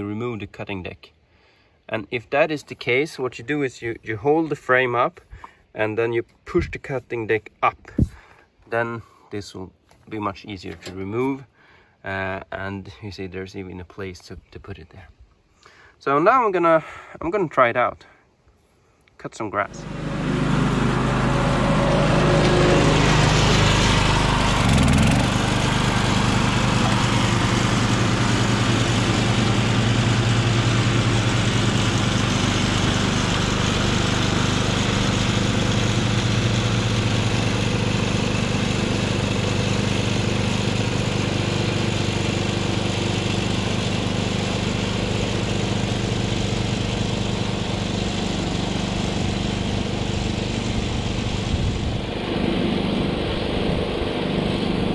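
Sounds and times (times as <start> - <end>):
riding mower engine cutting grass: 7.9 - 8.2, 19.6 - 54.9.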